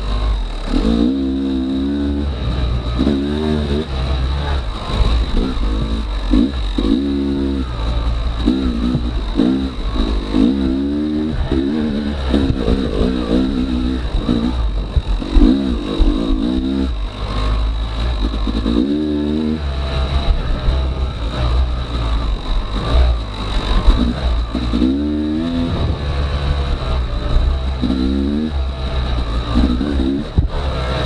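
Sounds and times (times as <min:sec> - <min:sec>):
dirt bike engine revving: 0:00.0 - 0:31.0.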